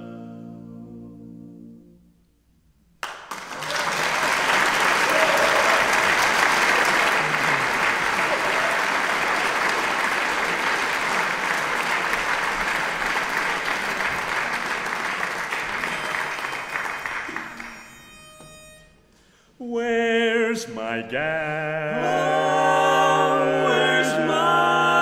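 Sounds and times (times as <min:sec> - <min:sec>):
audience applause: 0:03.0 - 0:17.8.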